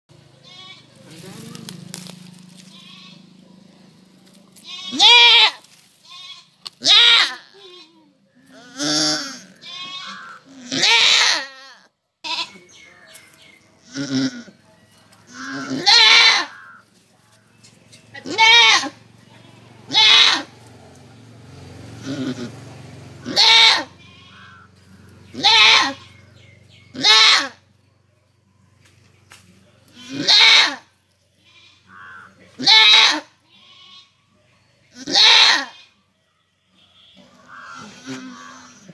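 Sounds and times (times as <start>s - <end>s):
goat bleating: 0.3s - 3.5s, 4.5s - 12.7s, 13.8s - 14.6s, 15.3s - 16.9s, 18.1s - 20.6s, 22.0s - 27.6s, 29.9s - 34.2s, 34.9s - 36.0s, 37.0s - 38.9s.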